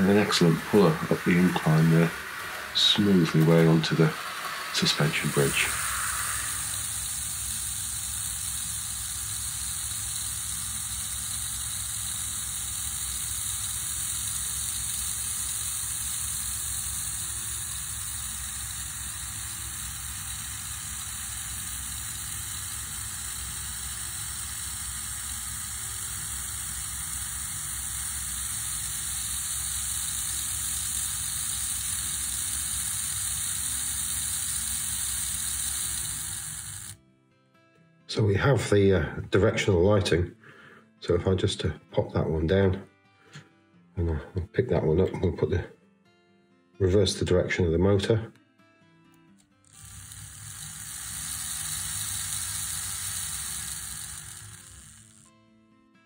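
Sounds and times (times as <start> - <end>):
small electric motor whirring: 0.0 - 37.0, 49.6 - 55.3.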